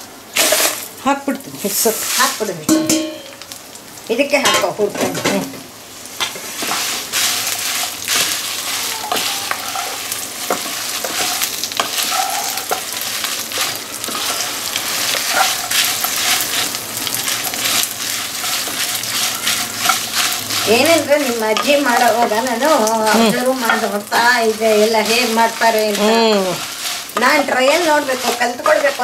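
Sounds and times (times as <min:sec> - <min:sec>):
chillies roasting in pan: 0:00.0 - 0:29.0
spatula scraping pan: 0:06.2 - 0:29.0.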